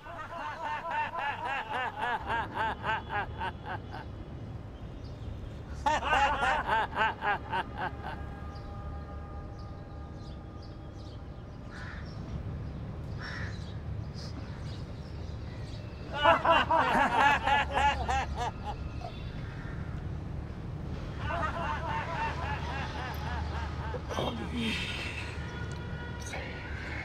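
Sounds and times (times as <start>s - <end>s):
group laughing rhythmically: 0.0s - 4.2s, 5.7s - 8.7s, 16.1s - 19.3s, 21.1s - 25.6s.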